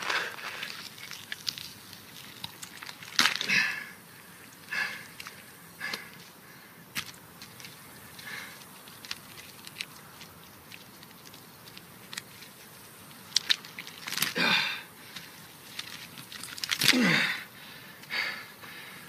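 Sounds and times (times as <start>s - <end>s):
wet squelches of handled flesh: 0.0s - 3.5s
man groaning and sobbing: 16.8s - 17.5s.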